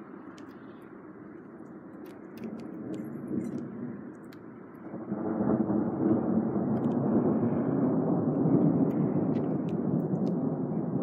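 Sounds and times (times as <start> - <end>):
thunder rumbling: 2.4 - 11.0.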